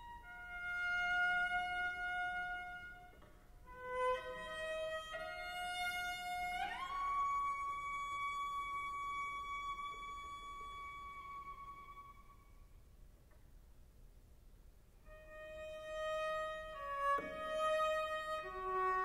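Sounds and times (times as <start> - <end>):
bowed cello notes: 15.1 - 19.0.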